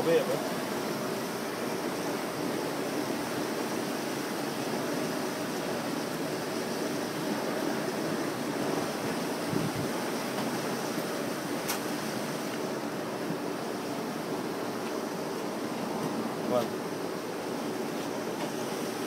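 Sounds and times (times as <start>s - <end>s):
wind on microphone: 9.4s - 10.0s.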